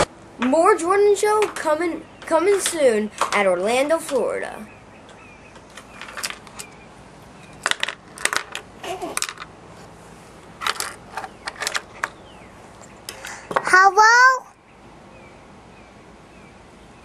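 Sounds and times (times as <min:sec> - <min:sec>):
child vocal sound: 0:08.8 - 0:09.2.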